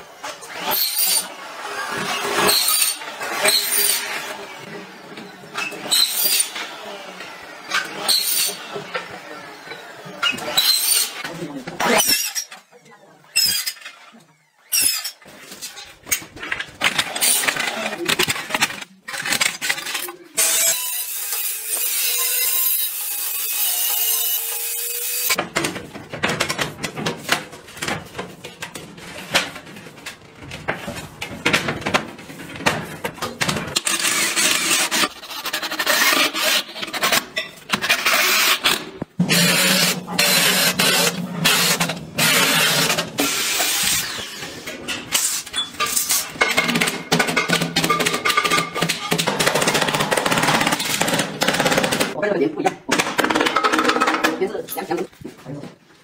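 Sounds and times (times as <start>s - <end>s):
power tool running: 33.8s - 44.5s.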